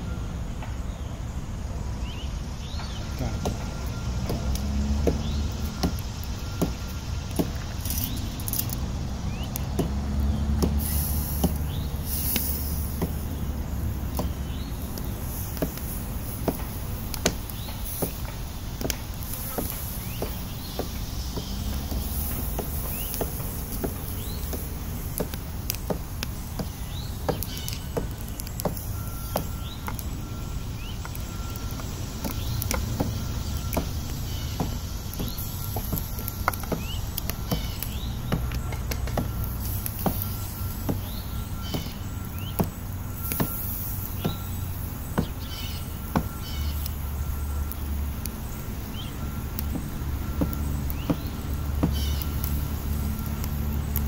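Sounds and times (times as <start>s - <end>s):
sharp crackles and clicks: 2.6s - 54.0s
bird chirps: 9.2s - 15.4s, 19.4s - 25.9s, 26.6s - 39.5s, 40.2s - 49.8s, 50.4s - 52.6s
faint steady whine: 10.9s - 54.0s.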